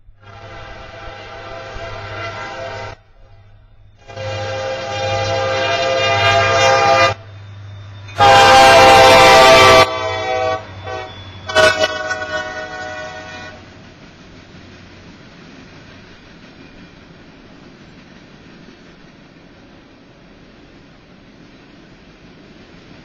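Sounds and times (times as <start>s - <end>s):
train air horn blasts: 0.1s - 7.3s, 8.1s - 13.7s.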